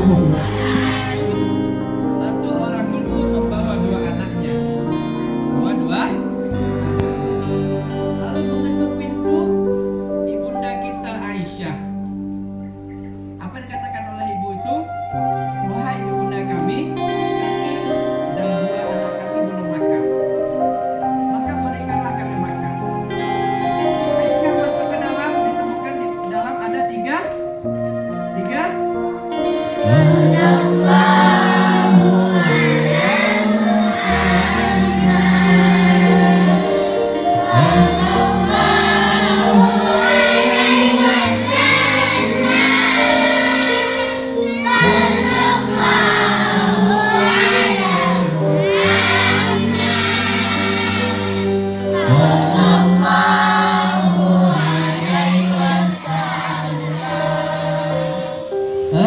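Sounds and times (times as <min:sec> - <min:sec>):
choir singing devotional song: 0:00.0 - 0:09.5, 0:29.2 - 0:59.0
long held bass notes: 0:00.0 - 0:26.3, 0:27.7 - 0:59.0.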